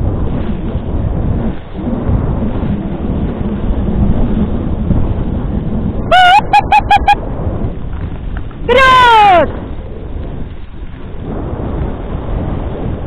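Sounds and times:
sled runners hissing over snow: 0:00.0 - 0:13.0
wind on microphone: 0:00.0 - 0:13.0
dog yelping: 0:06.1 - 0:07.2
high yips: 0:06.1 - 0:07.2.

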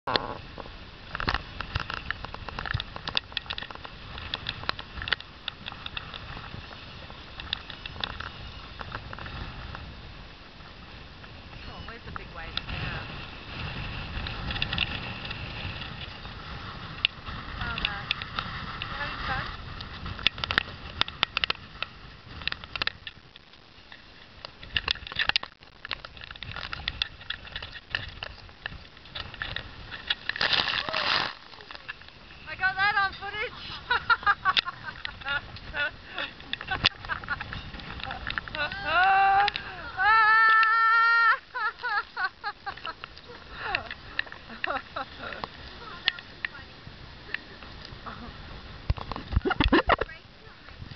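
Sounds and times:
sharp clicks and crackles: 0:00.1 - 0:09.9, 0:11.2 - 0:46.6, 0:48.8 - 0:50.9
wind buffeting microphone: 0:00.1 - 0:50.9
rain striking camera: 0:00.3 - 0:50.9.

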